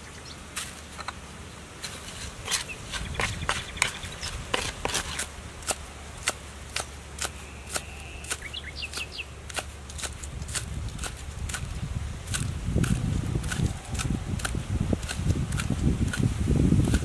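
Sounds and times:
knife chopping on wooden block: 2.4 - 11.7.

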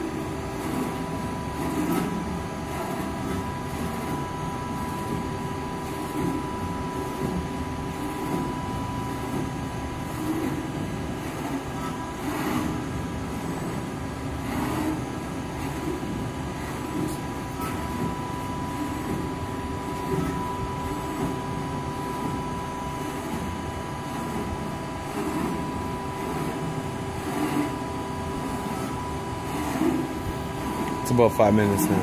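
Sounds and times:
high machine whine: 0.0 - 32.0
punch press machine hum: 0.0 - 32.0.

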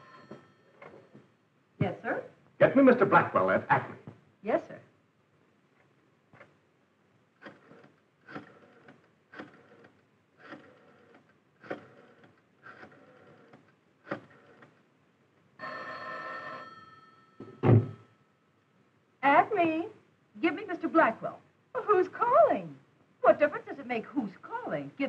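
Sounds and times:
telephone bell ringing: 0.0 - 1.2, 15.6 - 18.2
rotary telephone dialling: 7.4 - 14.8.

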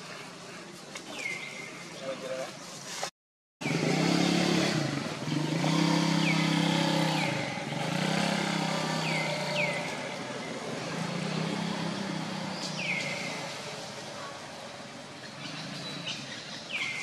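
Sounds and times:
engine running in swells: 3.6 - 16.6.

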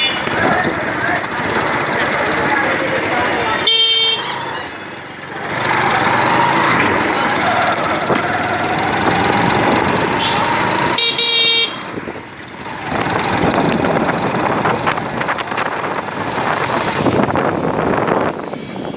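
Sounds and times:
vehicle horn honk: 0.0 - 0.3, 3.6 - 4.4, 10.2 - 11.9
motorcycle engine: 0.0 - 18.9
traffic noise: 0.0 - 18.9.

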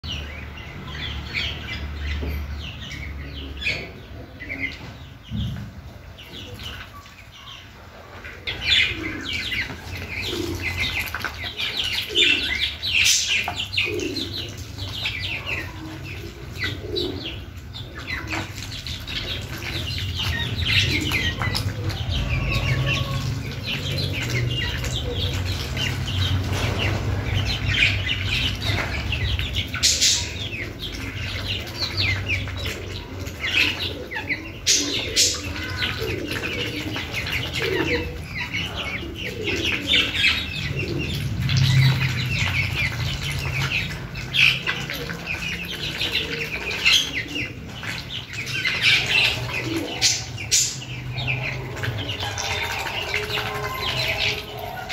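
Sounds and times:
birds pecking and dabbling in feed: 0.0 - 54.9
chicks chirping: 0.0 - 54.9.

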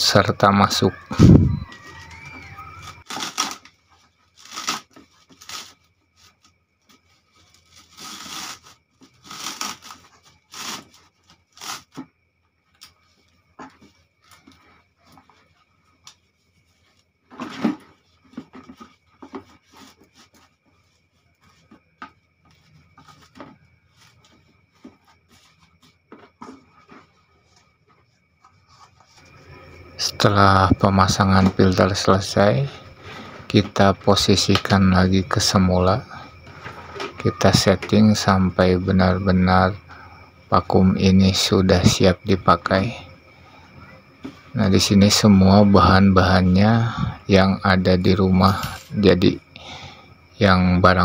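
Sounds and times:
cloth sock rustling and scraping: 3.0 - 12.1, 13.7 - 29.6.

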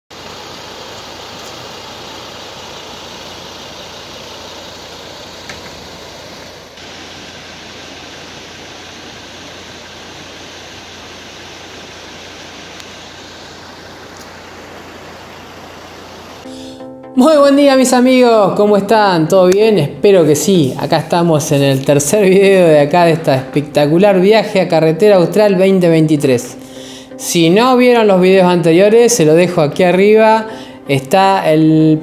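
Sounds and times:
low engine hum: 0.1 - 16.5
steady rushing noise: 0.1 - 16.6.

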